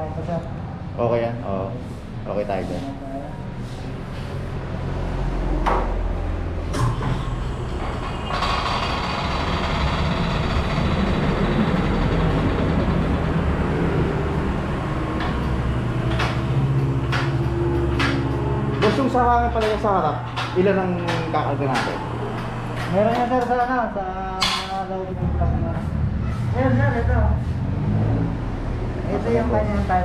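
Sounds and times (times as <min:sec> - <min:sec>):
low hum: 0:02.9 - 0:20.8
mechanical running noise: 0:07.3 - 0:19.3.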